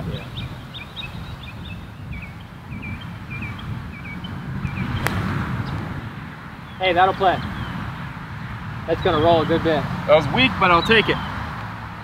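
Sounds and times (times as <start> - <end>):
birds chirping: 0.0 - 12.0
wind on microphone: 0.0 - 12.0
golf club striking ball: 5.0 - 5.9.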